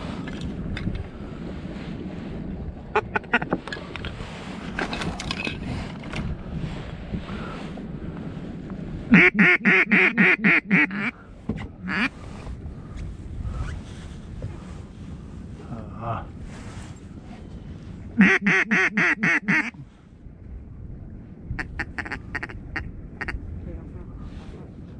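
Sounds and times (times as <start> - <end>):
duck quacking: 9.1 - 11.1, 11.8 - 12.1, 18.2 - 19.8, 21.6 - 22.6.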